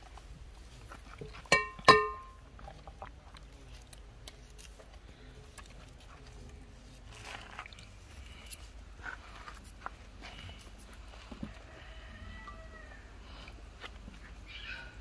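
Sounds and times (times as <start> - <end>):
metal cookware clinking: 1.5 - 2.4.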